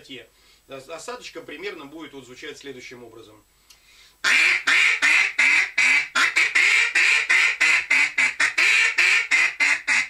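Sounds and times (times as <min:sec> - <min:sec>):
duck call quacks: 0:04.2 - 0:10.0.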